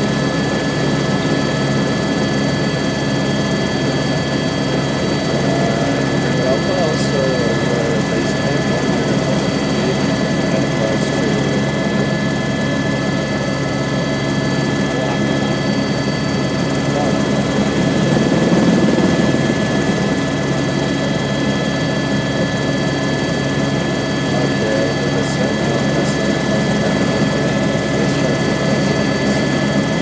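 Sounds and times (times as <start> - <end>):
helicopter rotor and engine drone: 0.0 - 30.0
high whining tones: 3.7 - 22.1.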